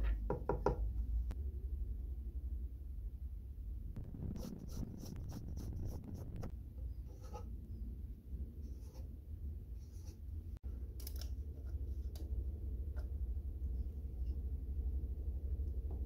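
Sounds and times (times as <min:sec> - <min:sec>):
low steady hum: 0:00.8 - 0:16.0
pencil scratching on plywood: 0:04.0 - 0:06.5.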